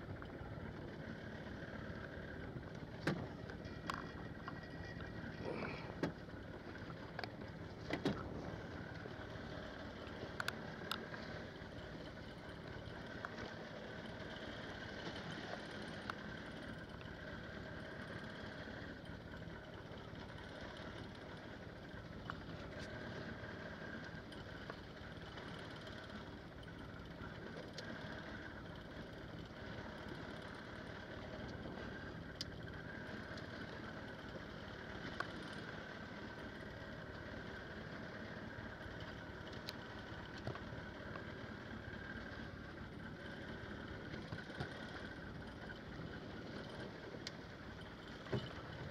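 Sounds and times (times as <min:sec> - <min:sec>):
boat engine idling: 0:00.0 - 0:48.9
sea noise: 0:00.0 - 0:48.9
wind: 0:00.0 - 0:48.9.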